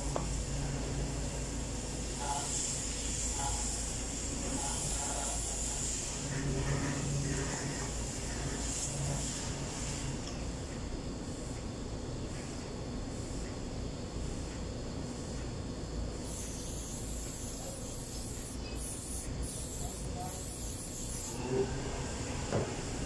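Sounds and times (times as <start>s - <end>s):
aerosol spray can hissing: 16.2s - 21.4s.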